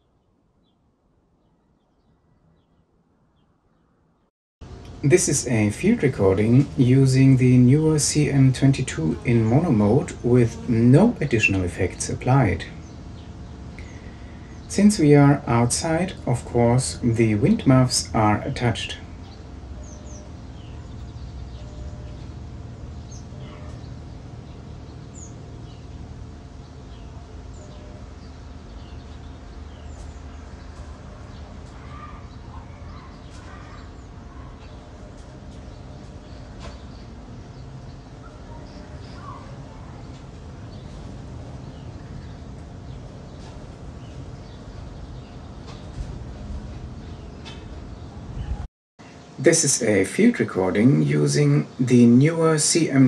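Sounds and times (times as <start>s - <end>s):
low wind rumble: 4.6s - 49.8s
bird chirps: 18.3s - 41.0s.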